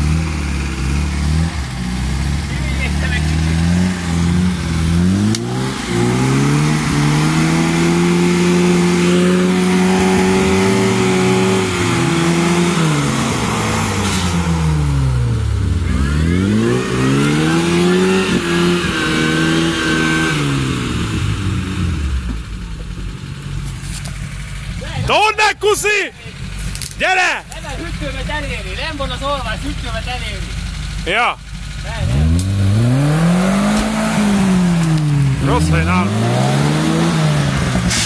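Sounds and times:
vehicle engine revving hard: 0.0s - 22.3s, 30.6s - 38.0s.

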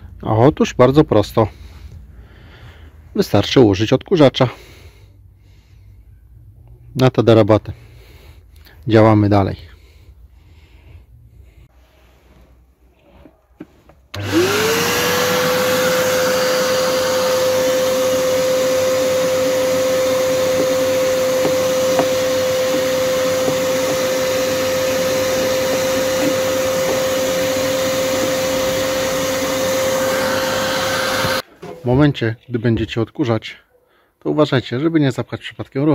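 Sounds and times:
vacuum cleaner motor whining: 14.1s - 31.4s.

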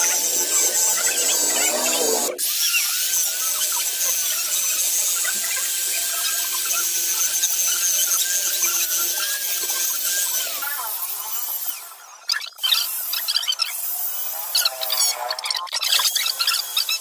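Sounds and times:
electric drill motor whine: 0.0s - 2.6s.

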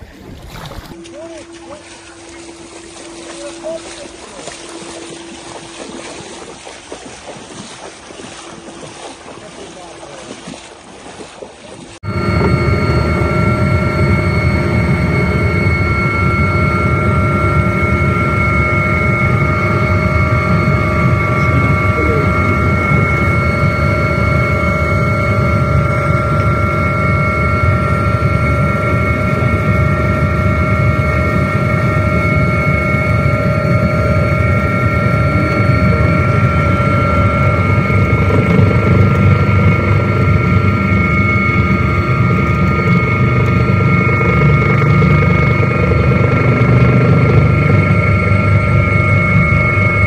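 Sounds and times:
helicopter turbine whine: 0.9s - 10.3s, 12.0s - 50.0s
rotor rumble: 11.4s - 50.0s.

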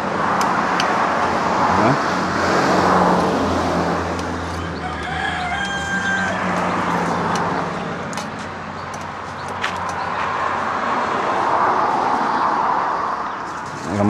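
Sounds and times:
rooster crowing: 4.4s - 7.3s.

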